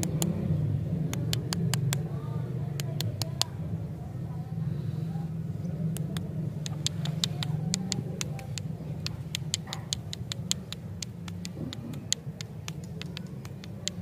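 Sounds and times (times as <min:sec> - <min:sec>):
steady low hum: 0:00.0 - 0:14.0
rapid uneven ticking clicks: 0:01.1 - 0:02.0, 0:06.0 - 0:14.0.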